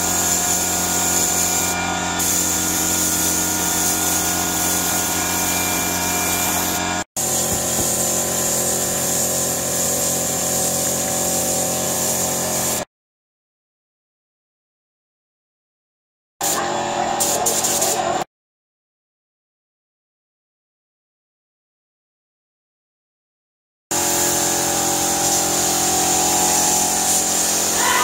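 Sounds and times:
spray gun hissing: 0.0s - 12.9s, 24.0s - 28.0s.

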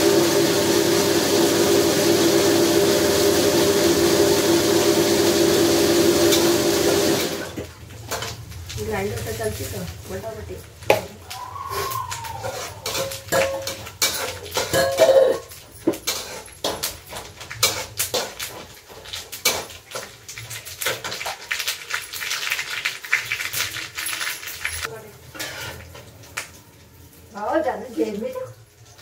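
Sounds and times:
metal ladle scraping steel pot: 12.4s - 15.5s, 16.1s - 16.8s.

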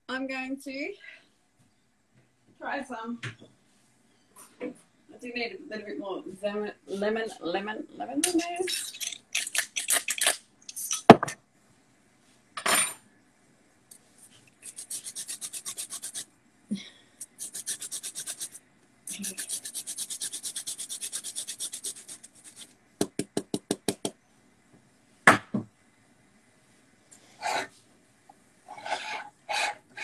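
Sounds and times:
grater rasping strokes: 14.6s - 16.3s, 17.2s - 22.7s, 28.7s - 30.0s
quick taps: 23.0s - 24.2s.

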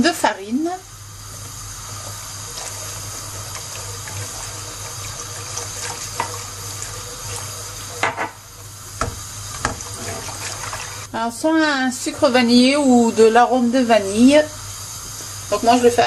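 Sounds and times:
whisk swishing liquid: 1.9s - 8.0s, 9.5s - 11.1s
whisk knocking against pan: 4.8s - 8.3s, 9.0s - 9.9s.

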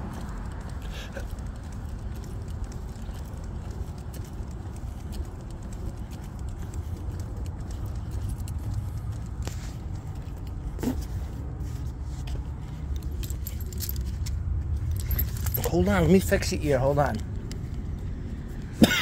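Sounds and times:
low rumble of handling and walking: 0.0s - 19.0s
metallic jingling and clinking: 12.3s - 17.2s.

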